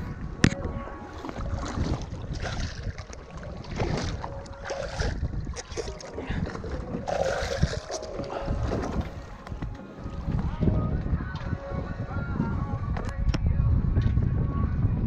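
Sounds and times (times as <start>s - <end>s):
wind buffeting microphone: 0.0s - 15.0s
water slapping against boat hull: 0.4s - 10.4s.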